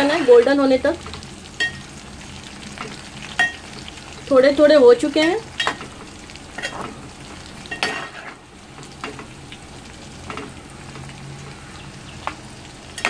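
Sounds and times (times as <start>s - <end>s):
fat sizzling in a pot: 0.0s - 13.0s
metal spoon scraping a pot: 7.7s - 8.4s.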